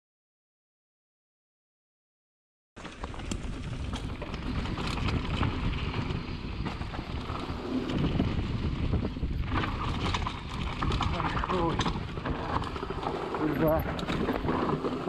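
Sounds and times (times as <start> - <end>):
bike tyres clicking and rattling: 2.8 - 15.0
wind buffeting microphone: 3.0 - 15.0.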